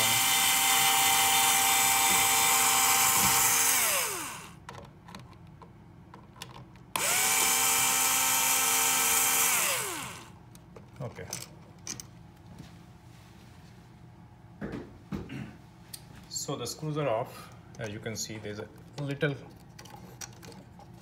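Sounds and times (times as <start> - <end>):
cordless drill motor whine: 0.0 - 4.6, 7.0 - 10.4.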